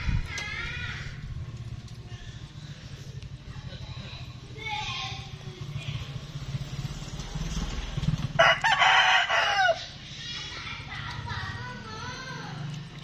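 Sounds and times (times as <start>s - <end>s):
rooster crowing: 8.4s - 10.0s.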